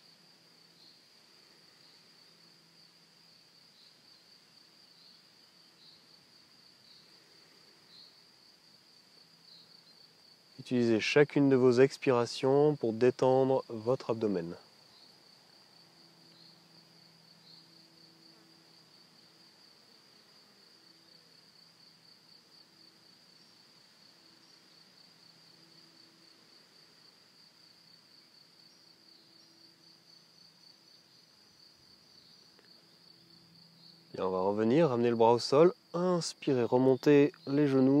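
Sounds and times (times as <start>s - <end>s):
high-pitched insect trill: 0.0s - 38.0s.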